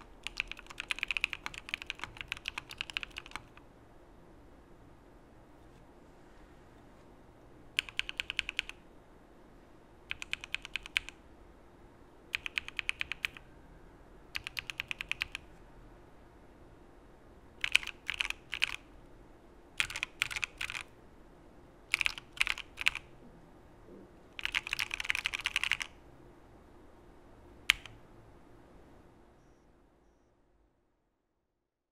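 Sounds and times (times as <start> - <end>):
mechanical keyboard typing: 0.0 - 3.6, 7.8 - 8.8, 10.1 - 11.2, 12.3 - 13.4, 14.3 - 15.4, 17.6 - 18.8, 19.8 - 20.9, 21.9 - 23.1, 24.4 - 26.0, 27.7 - 28.0.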